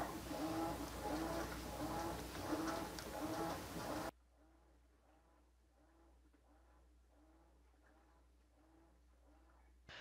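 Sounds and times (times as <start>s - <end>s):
washing machine agitating: 0.0s - 4.1s.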